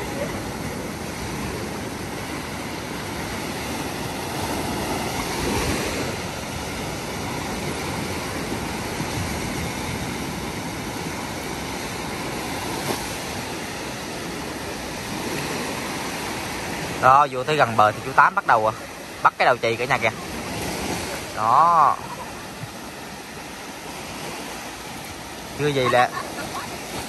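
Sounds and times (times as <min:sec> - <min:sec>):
sea surf washing onto beach: 0:00.0 - 0:27.0.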